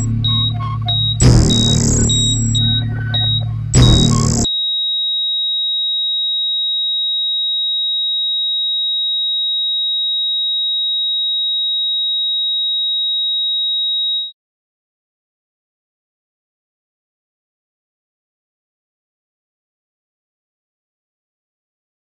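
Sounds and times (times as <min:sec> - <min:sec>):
electronic music burst: 0:00.0 - 0:04.5
high-pitched sine tone: 0:00.0 - 0:05.2.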